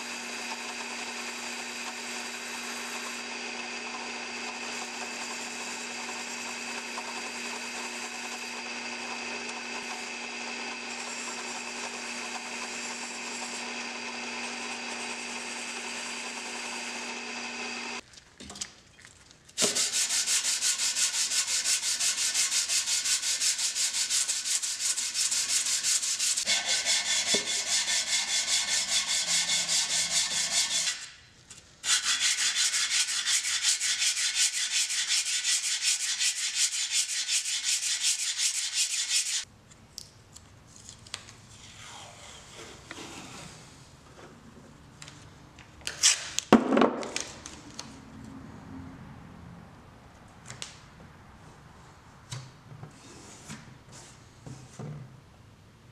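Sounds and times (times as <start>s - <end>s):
drill press motor running: 0.0s - 18.0s
plane scratching on sandpaper: 19.6s - 31.1s, 31.8s - 39.4s.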